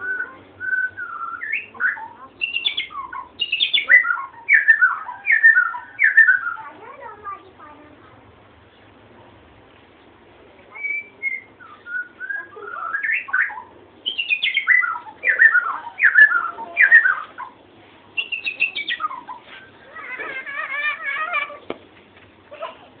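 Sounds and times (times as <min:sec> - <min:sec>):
bird whistling song: 0:00.0 - 0:06.7, 0:10.7 - 0:17.6, 0:18.2 - 0:21.3.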